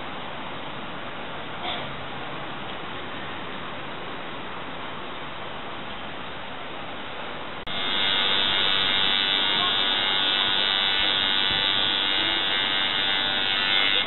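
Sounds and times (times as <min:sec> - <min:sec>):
tattoo machine buzzing: 0:07.7 - 0:14.0.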